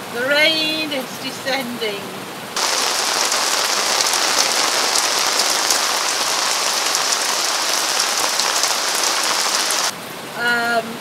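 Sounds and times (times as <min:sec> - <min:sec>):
heavy rain pouring: 0:02.4 - 0:11.0.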